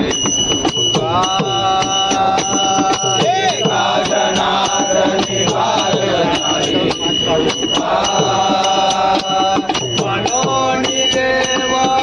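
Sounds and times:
men singing devotional song: 0.0 - 12.0
sharp percussion beat: 0.0 - 12.0.

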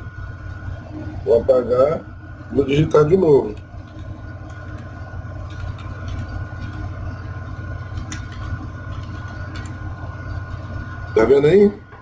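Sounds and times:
steady low hum: 0.0 - 12.0
keyboard keys clicking: 3.6 - 4.9, 5.5 - 6.8, 7.9 - 9.8.

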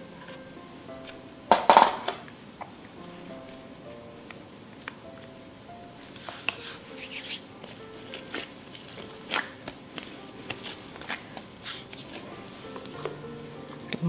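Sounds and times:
quiet background music: 0.0 - 14.0
dough slapping and smacking: 6.2 - 14.0.

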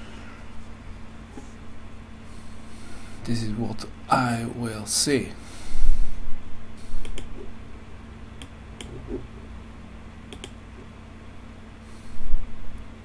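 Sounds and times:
low electrical hum: 0.0 - 13.0
computer mouse clicks: 7.0 - 7.3, 8.4 - 9.0, 10.3 - 10.6.

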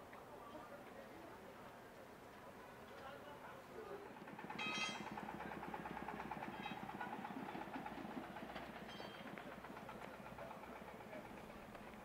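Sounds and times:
engine running with rapid chatter: 3.5 - 12.0.

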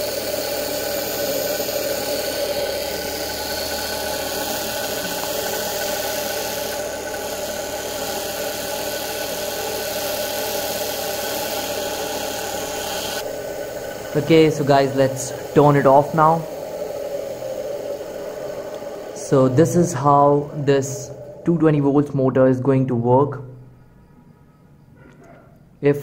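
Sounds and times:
electric motor whining: 0.0 - 21.8.

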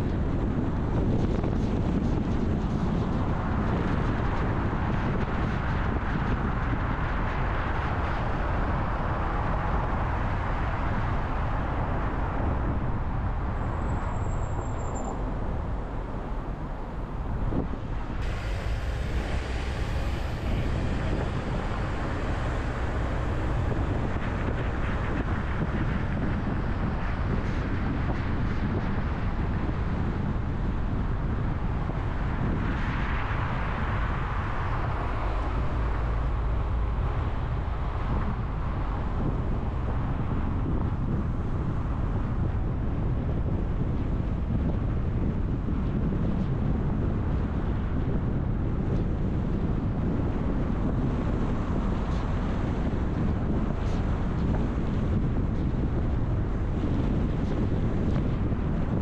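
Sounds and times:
car road noise rumble: 0.0 - 59.0.

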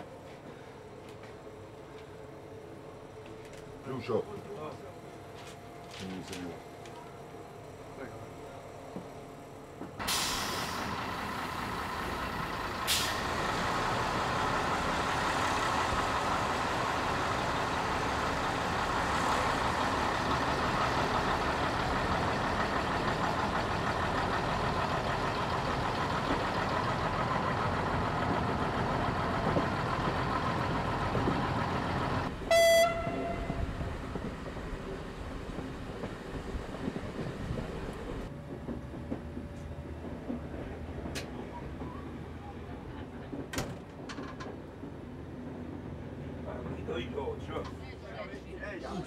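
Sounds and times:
diesel train engine running: 0.0 - 49.0
loud train horn blast: 32.4 - 33.8.

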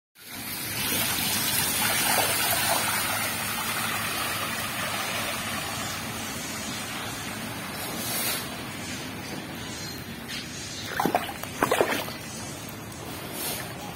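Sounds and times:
water running: 10.8 - 12.8.

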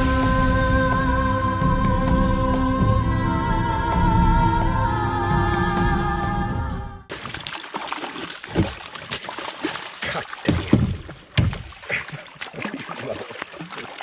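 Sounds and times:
fish thrashing in water: 7.1 - 14.0
sharp water splashes: 7.1 - 14.0.

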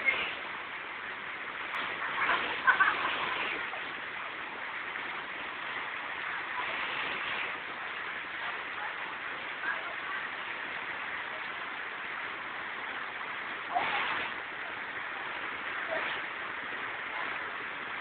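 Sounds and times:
river rushing over rocks: 0.0 - 18.0.

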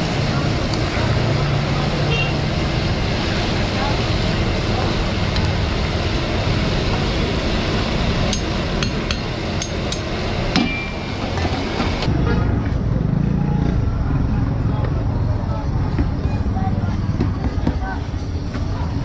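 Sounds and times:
street din: 0.0 - 19.0
sharp metallic taps: 8.3 - 10.8.

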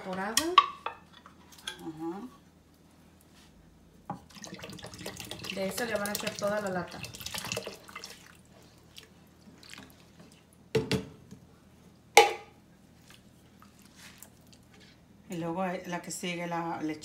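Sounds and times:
milk pouring into a pot: 4.2 - 8.5.

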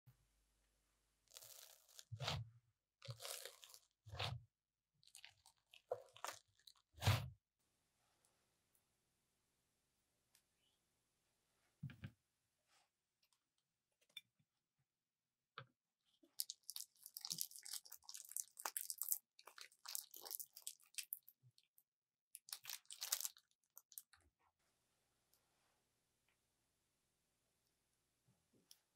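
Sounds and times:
slime squelching: 1.3 - 4.4, 5.0 - 7.3, 16.3 - 21.3, 22.5 - 24.1.

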